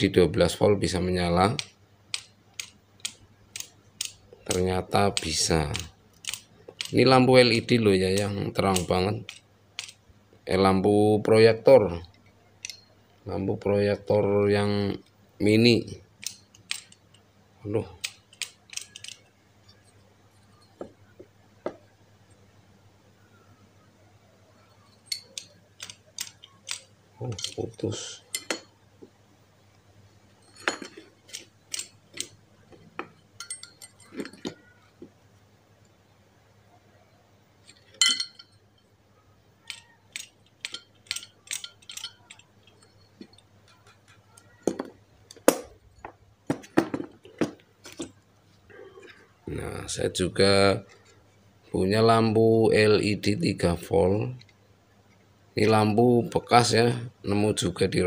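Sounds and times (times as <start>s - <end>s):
metallic clinks and clicks: 1.6s - 7.0s, 7.6s - 10.0s, 12.1s - 13.2s, 15.8s - 17.3s, 18.0s - 21.1s, 24.6s - 28.7s, 30.3s - 35.0s, 37.6s - 38.9s, 39.6s - 48.2s.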